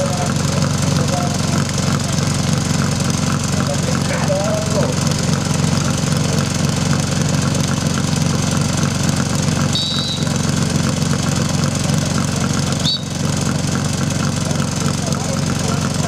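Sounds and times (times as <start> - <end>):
pump engine idling: 0.0 - 16.0
high chirps: 9.8 - 10.4, 12.8 - 13.3.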